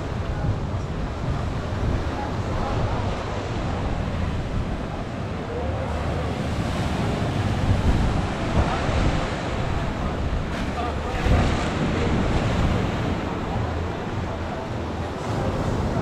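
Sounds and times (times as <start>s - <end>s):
waves breaking: 0.0s - 16.0s
wind buffeting microphone: 0.0s - 16.0s.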